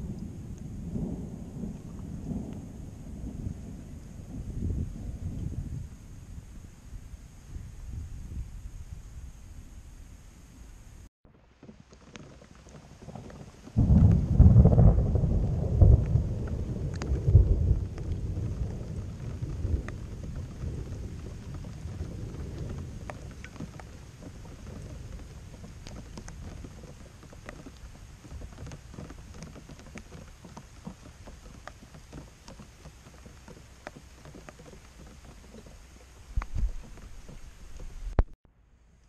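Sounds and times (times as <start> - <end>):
thunder rumbling: 0.0 - 10.0, 13.3 - 32.1
small ticks: 11.6 - 38.3.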